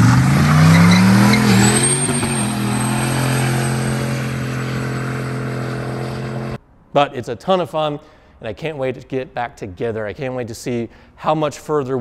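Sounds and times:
engine revving high: 0:00.0 - 0:06.6.

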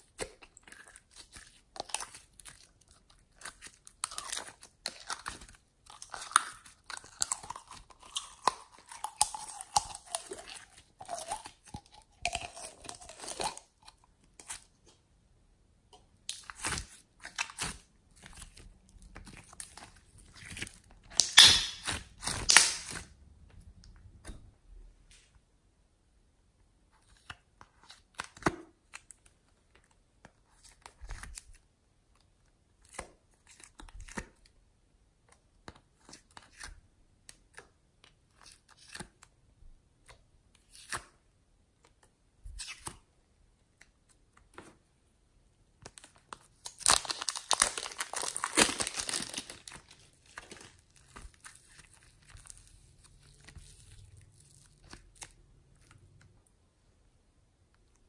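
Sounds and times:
plastic containers clicking and crinkling: 0:45.8 - 0:52.6.

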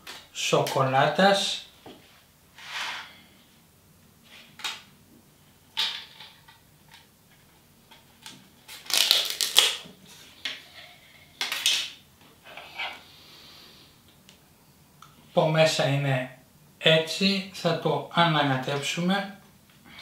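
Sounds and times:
plastic crinkling and rattling: 0:08.0 - 0:09.9.

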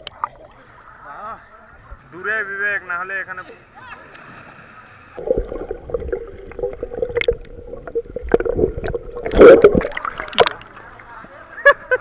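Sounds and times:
muffled underwater sloshing: 0:04.4 - 0:11.0
burst of bubbles underwater: 0:05.2 - 0:10.7.

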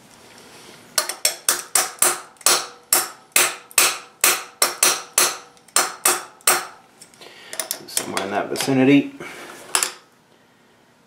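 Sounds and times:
steel tool tapping metal vise: 0:01.0 - 0:06.8.

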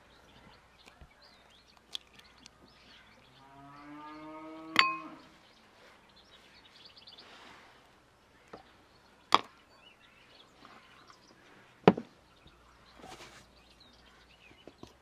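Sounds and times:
metal spoon knocking bowl: 0:04.8 - 0:05.0.

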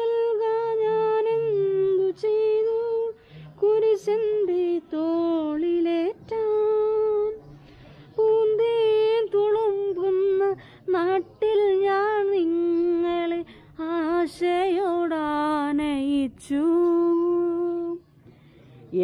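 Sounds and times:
woman singing a hymn: 0:00.0 - 0:07.4, 0:08.2 - 0:18.0
short breaths: 0:03.2 - 0:03.6, 0:07.4 - 0:08.2, 0:10.6 - 0:10.8.

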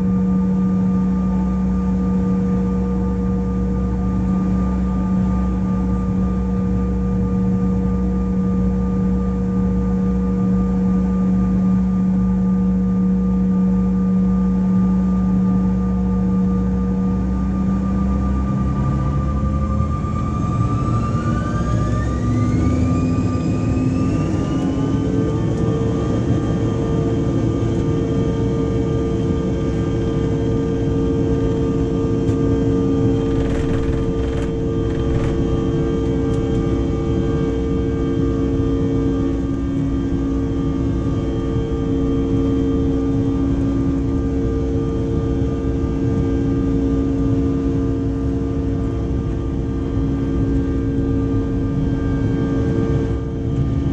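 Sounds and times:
jet engines whining: 0:17.2 - 0:45.1
heavy rumble of takeoff roll: 0:18.7 - 0:53.9
brief rattles: 0:33.2 - 0:35.5.

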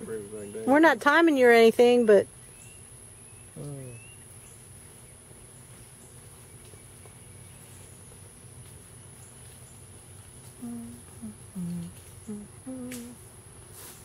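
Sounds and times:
insects droning: 0:00.0 - 0:14.0
faint light ticks: 0:12.8 - 0:13.2.

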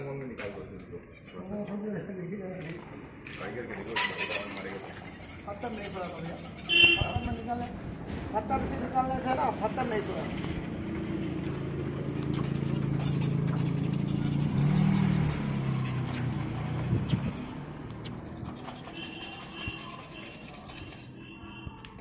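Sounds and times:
engine hum: 0:06.6 - 0:20.3
steel blade on grinding wheel: 0:18.3 - 0:21.2.

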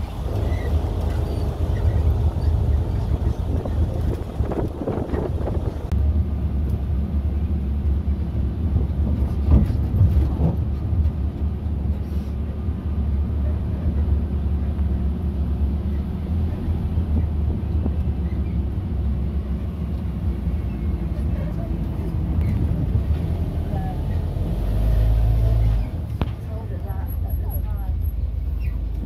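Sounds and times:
road rumble: 0:00.0 - 0:29.0
vehicle engine droning: 0:00.0 - 0:29.0.

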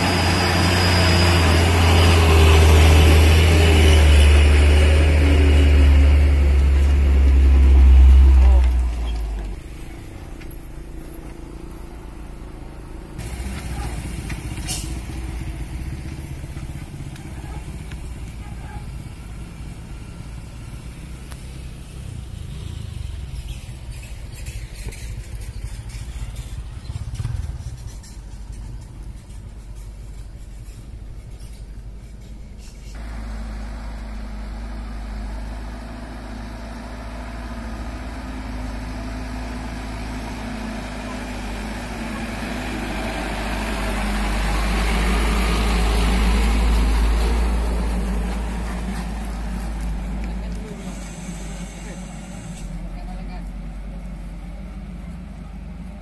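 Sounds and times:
motorbike passing: 0:00.0 - 0:30.2, 0:32.9 - 0:56.0
truck engine passing: 0:00.0 - 0:56.0
car passing: 0:33.0 - 0:56.0.

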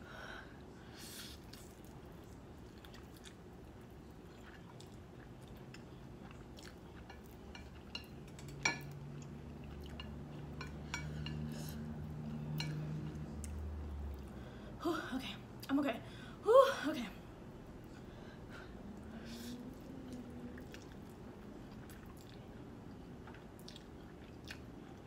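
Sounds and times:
low steady hum: 0:00.0 - 0:25.0
person chewing noodles: 0:01.2 - 0:10.5, 0:18.8 - 0:25.0.

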